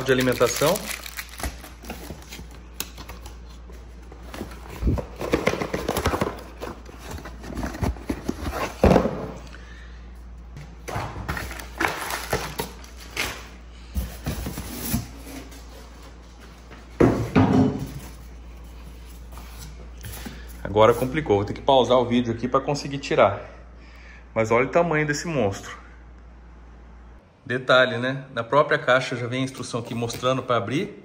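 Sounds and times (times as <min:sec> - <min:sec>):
cardboard and paper rustling: 0:00.0 - 0:09.2, 0:11.2 - 0:17.2.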